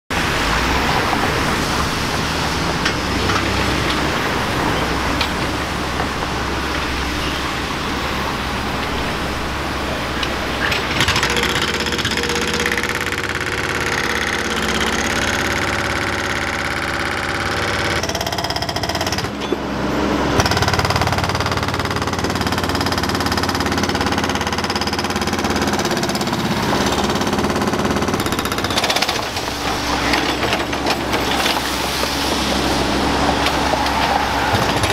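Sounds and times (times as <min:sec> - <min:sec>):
diesel engine running: 0:00.1 - 0:34.9
hydraulic breaker hammering concrete: 0:10.8 - 0:19.6, 0:20.4 - 0:31.7, 0:33.4 - 0:34.9.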